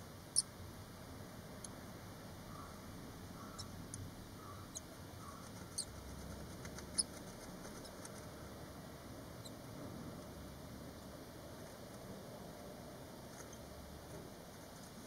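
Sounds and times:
nestlings peeping: 0:00.0 - 0:00.6, 0:01.5 - 0:09.8, 0:13.1 - 0:15.0.

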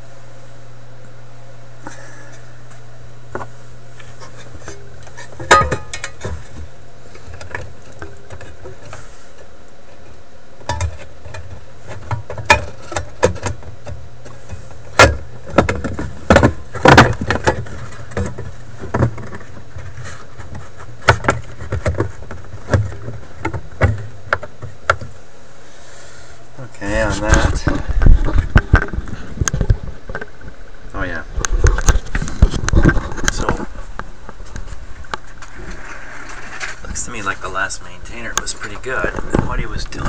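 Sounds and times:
steady low hum: 0:00.0 - 0:40.0
clicks and metallic knocks: 0:05.4 - 0:06.4.

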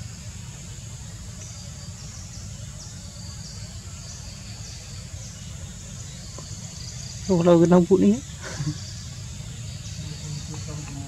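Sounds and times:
high-pitched insect hum: 0:00.0 - 0:11.0.

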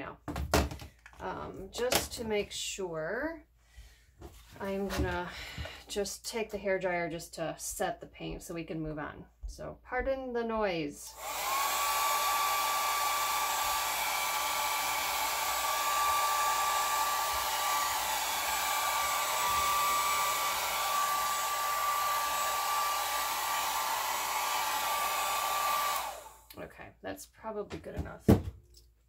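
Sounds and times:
hair dryer whine and air rush: 0:11.1 - 0:26.5.

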